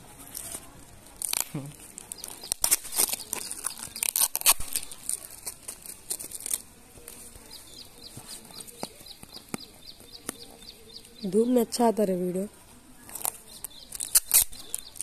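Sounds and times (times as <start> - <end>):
packaging tearing and crinkling: 0.3 - 7.3, 13.1 - 15.0.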